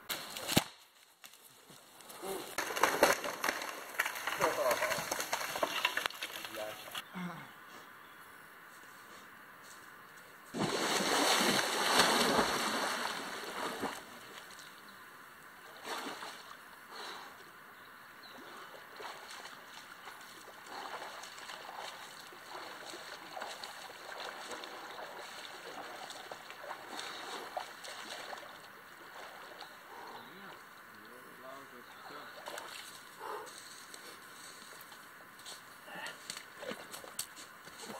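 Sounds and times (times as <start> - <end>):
person splashing into river: 10.5 - 14.1
swimming strokes splashing: 10.6 - 14.2, 18.9 - 29.6.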